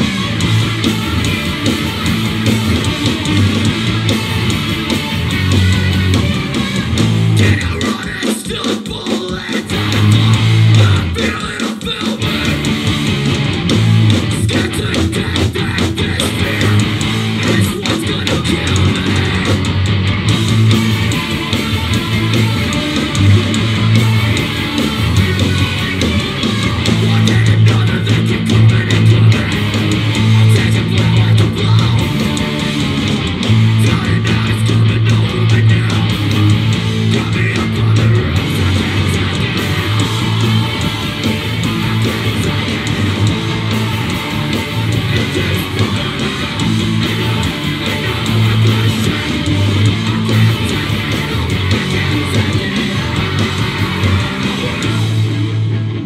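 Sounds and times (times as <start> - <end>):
heavy rock band playing: 0.0 - 56.0.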